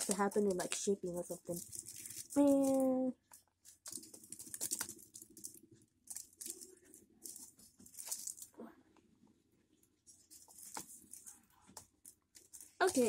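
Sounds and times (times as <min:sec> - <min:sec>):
foil wrapper crinkling: 0:00.0 - 0:08.6.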